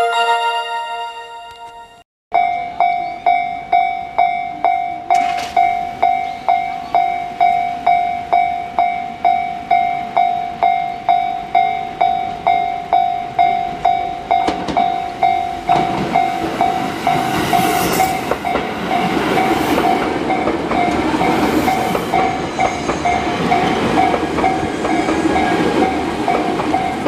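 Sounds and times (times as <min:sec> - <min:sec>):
level crossing bell clanging: 0:00.0 - 0:02.7
train rumble: 0:14.3 - 0:27.0.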